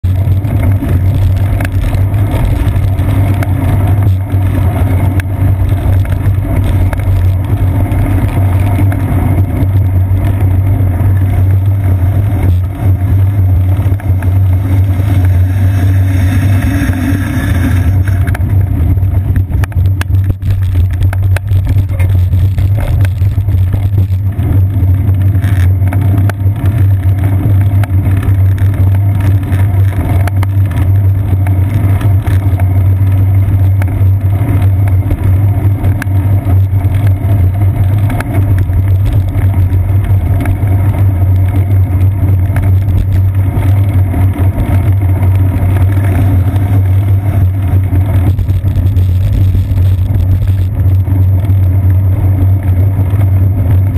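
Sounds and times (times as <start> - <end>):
bicycle road vibration: 0.0 - 53.9
wind rumble: 0.0 - 53.9
small knocks and clicks: 19.5 - 24.2.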